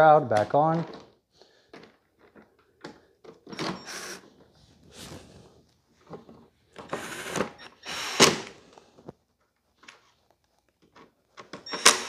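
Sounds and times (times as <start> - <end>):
drill driving a screw: 3.5 - 4.3, 6.8 - 8.6, 11.6 - 12.0.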